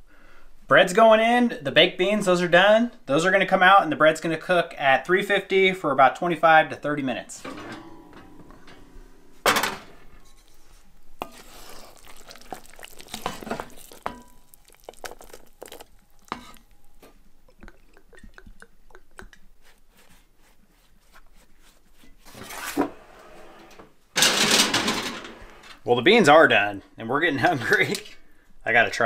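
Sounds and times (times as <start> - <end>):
skillet scraping into oven: 6.9 - 14.3, 22.2 - 25.8
pots clinking and knocking: 7.4 - 19.3.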